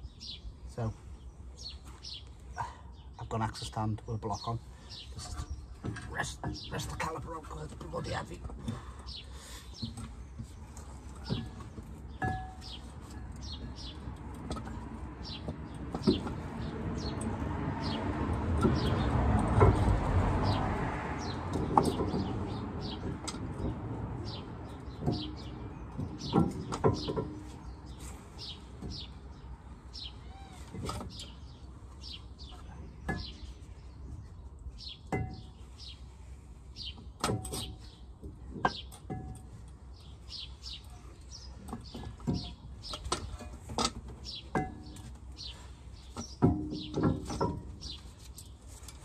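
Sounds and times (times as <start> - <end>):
small birds chirping: 0.0 - 49.0
hand tools knocking and clanking: 9.8 - 17.4, 18.4 - 29.2, 32.5 - 33.6, 35.0 - 35.6, 37.0 - 39.7, 41.5 - 48.5.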